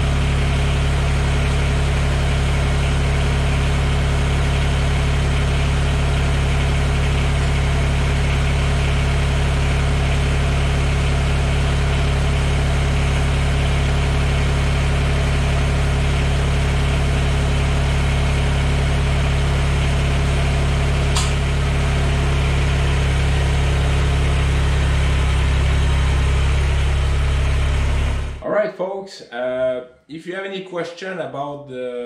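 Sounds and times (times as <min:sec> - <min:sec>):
tractor diesel engine running: 0:00.0 - 0:28.4
sharp click: 0:21.1 - 0:21.4.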